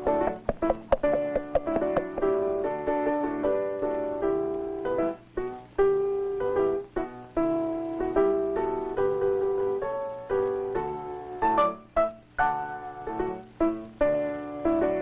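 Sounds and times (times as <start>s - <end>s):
piano music: 0.0s - 15.0s.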